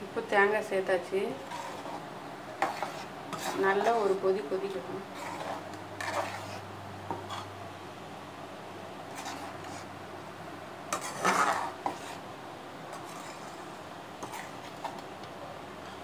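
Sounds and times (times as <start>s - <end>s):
metal spoon scraping a pan: 1.3s - 2.0s, 2.6s - 7.6s, 9.1s - 9.9s, 10.9s - 12.2s, 12.9s - 15.0s.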